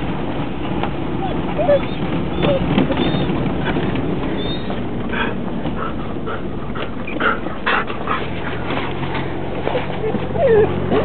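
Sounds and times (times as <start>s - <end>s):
car engine rumble and road noise: 0.0s - 11.0s
dog whimpering: 1.2s - 3.4s, 4.3s - 4.8s, 9.7s - 11.0s.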